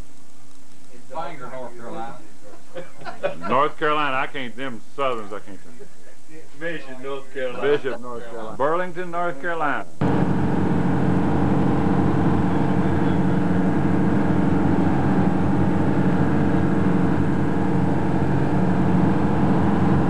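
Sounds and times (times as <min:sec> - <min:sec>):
boat engine droning: 0:10.0 - 0:20.0.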